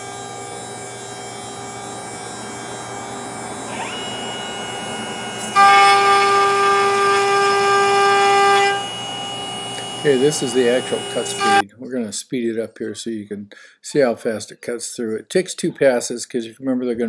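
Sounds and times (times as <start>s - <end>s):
router bit cutting wood: 0.0s - 11.6s
router spindle high whine: 0.0s - 11.6s
second whining tone: 0.0s - 11.6s.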